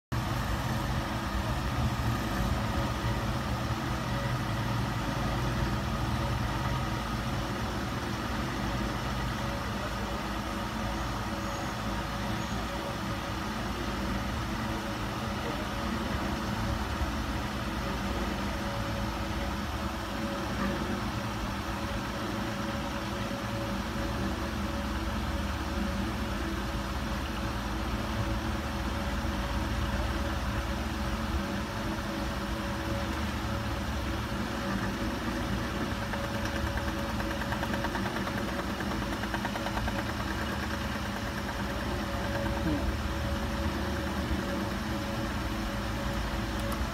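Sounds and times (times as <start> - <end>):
low machine hum: 0.1 - 46.9.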